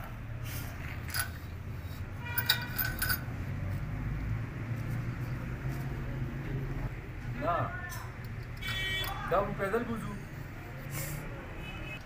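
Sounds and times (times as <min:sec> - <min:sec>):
metal parts and tools clinking: 0:00.8 - 0:03.4, 0:07.9 - 0:09.2.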